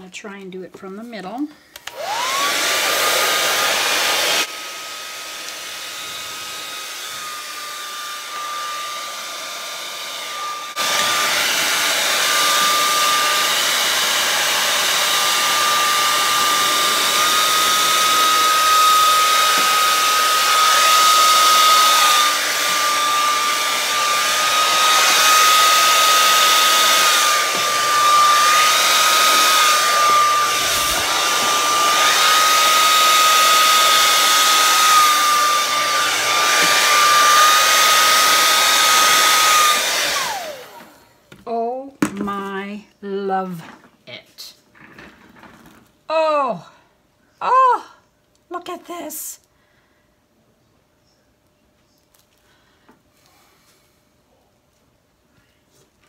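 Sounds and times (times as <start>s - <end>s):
hair dryer whine and air rush: 1.8s - 41.3s.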